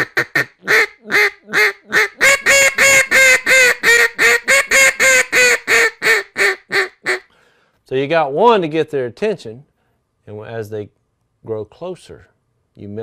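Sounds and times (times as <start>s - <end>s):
duck call quacks: 0.0s - 7.3s.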